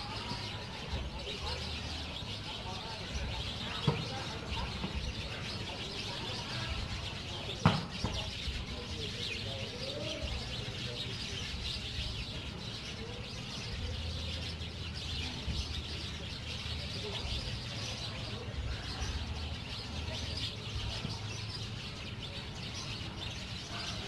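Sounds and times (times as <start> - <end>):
small birds chirping: 0.0 - 24.0
sharp knock: 7.6 - 8.2.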